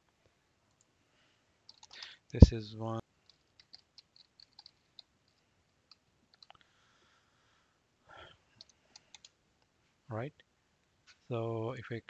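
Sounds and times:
keyboard keystrokes: 3.3s - 5.1s.

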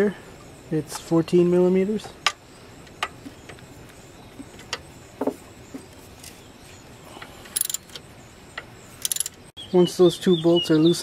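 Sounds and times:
ratchet wrench ticking: 7.6s - 8.0s, 9.0s - 9.4s.

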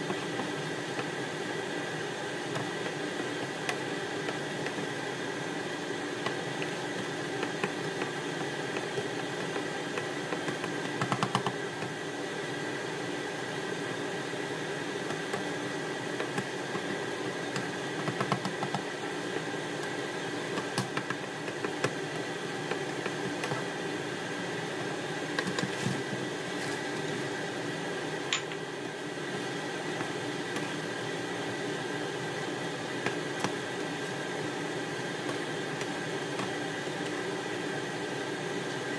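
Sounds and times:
kitchen appliance fan hum: 0.0s - 38.9s.

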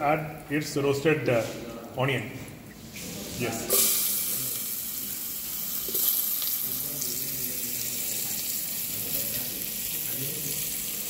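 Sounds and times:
onion sizzling in hot oil: 3.4s - 11.0s.

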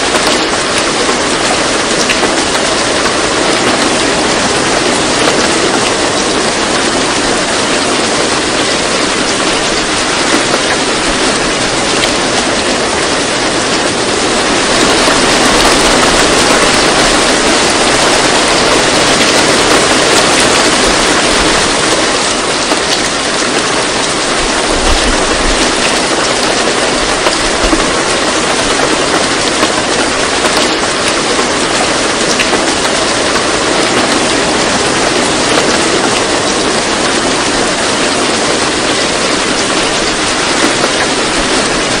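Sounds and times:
steady rain-like hiss: 0.0s - 42.0s.

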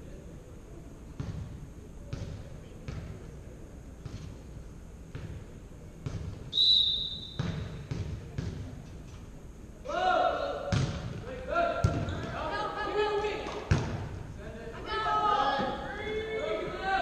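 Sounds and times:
referee whistle blast: 6.5s - 7.5s.

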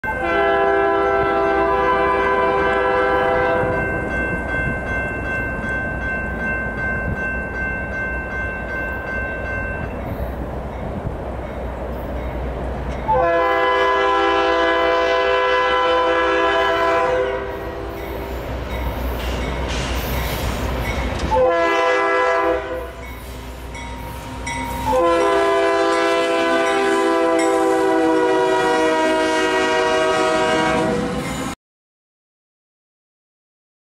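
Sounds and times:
locomotive air horn blasts: 0.0s - 3.8s, 13.1s - 18.2s, 21.3s - 23.0s, 24.8s - 31.3s
train rumbling past: 0.0s - 31.6s.

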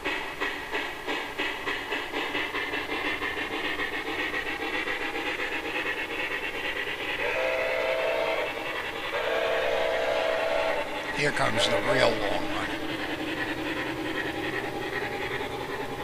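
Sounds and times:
model steam locomotive chuffing: 0.0s - 16.0s
train rolling on track: 0.0s - 16.0s
two-tone train whistle: 7.2s - 12.2s.

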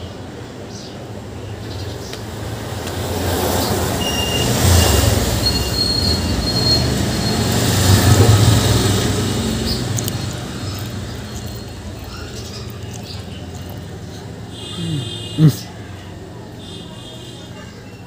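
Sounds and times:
heavy vehicle rumbling past: 3.0s - 16.5s
faint high squeals: 4.0s - 8.1s.

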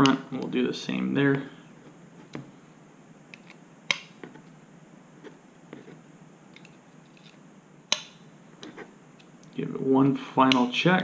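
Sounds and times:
sharp click: 3.3s - 4.1s, 7.9s - 8.2s, 10.5s - 10.8s.

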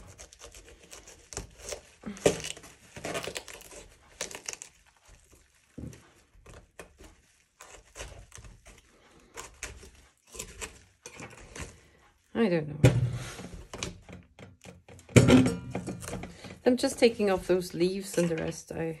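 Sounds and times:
cauliflower leaves snapping: 0.0s - 5.8s, 6.4s - 11.8s.

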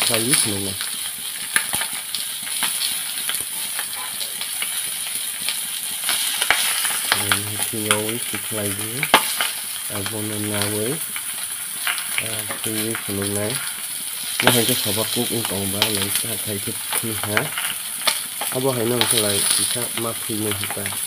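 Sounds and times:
chicken sizzling in hot oil: 0.0s - 21.0s
low voice-like hum: 3.6s - 4.5s.

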